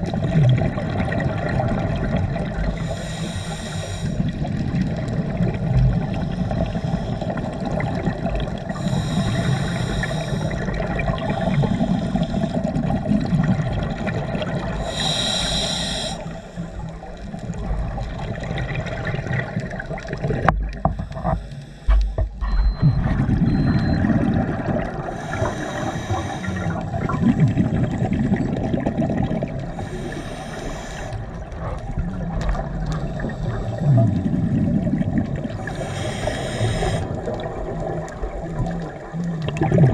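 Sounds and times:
exhaled bubbles: 0.0s - 39.9s
regulator hissing inhales: 2.8s - 4.3s, 8.7s - 10.7s, 11.4s - 12.7s, 14.8s - 16.9s, 25.1s - 26.8s, 29.7s - 31.3s, 35.6s - 37.2s.

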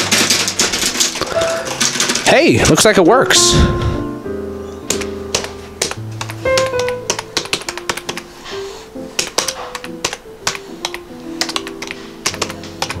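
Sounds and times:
background music with held notes: 0.0s - 13.0s
keyboard key clicks: 4.9s - 8.2s, 9.2s - 13.0s.

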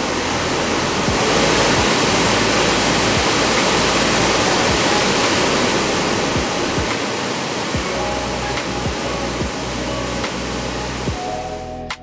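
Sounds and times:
dull low thumps: 0.0s - 7.0s, 8.6s - 9.8s
waterfall rushing: 0.0s - 11.6s.

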